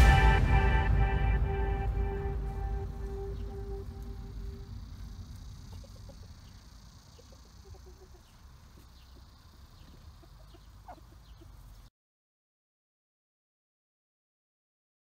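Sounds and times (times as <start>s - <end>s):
chickens clucking: 2.8s - 11.9s.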